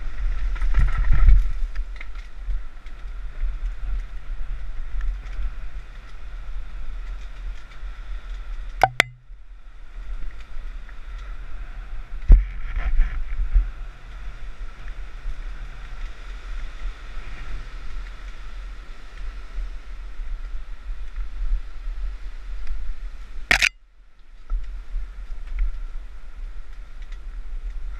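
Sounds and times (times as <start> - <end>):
bike tyres hissing on trail: 0.0 - 8.8, 9.6 - 23.4, 24.3 - 27.9
wind rumble on microphone: 0.0 - 27.9
sharp clicks: 8.8 - 9.2, 23.5 - 23.7.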